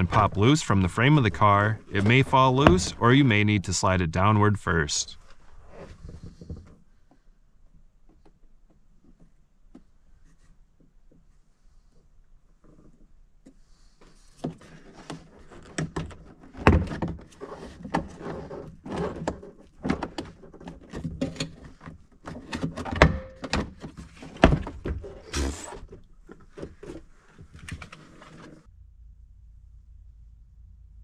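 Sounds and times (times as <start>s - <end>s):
panel thuds: 1.4s - 3.4s, 22.8s - 25.1s.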